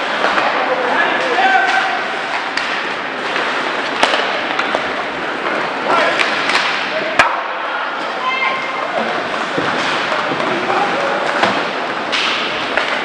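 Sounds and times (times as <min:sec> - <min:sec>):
crowd and rink hum: 0:00.0 - 0:13.0
voices: 0:00.0 - 0:13.0
sharp cracks and knocks: 0:01.7 - 0:05.6, 0:06.2 - 0:07.5, 0:11.3 - 0:13.0.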